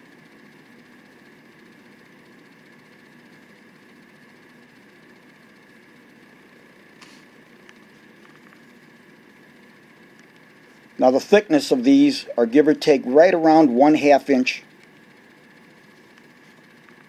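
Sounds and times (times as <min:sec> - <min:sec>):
background hum: 0:00.0 - 0:17.0
thin high whine: 0:05.8 - 0:17.0.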